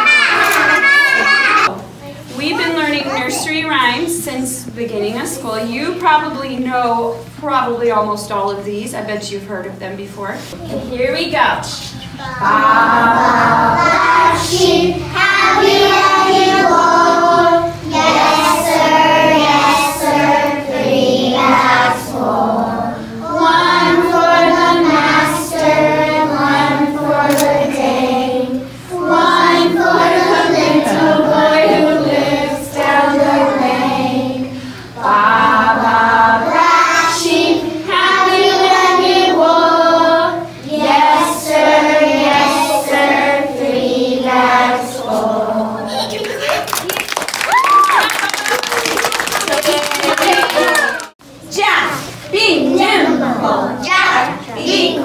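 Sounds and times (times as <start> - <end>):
children singing in unison: 12.2 - 46.1.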